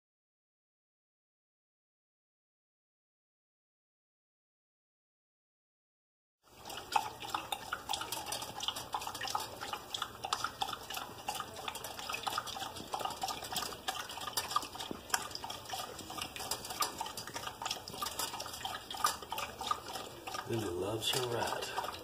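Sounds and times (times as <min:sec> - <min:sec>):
dog lapping water from metal bowl: 0:06.5 - 0:22.0.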